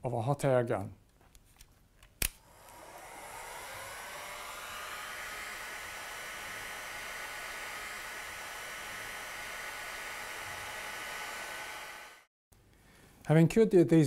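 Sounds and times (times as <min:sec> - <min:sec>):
hot air gun fan blowing: 0:02.4 - 0:12.3.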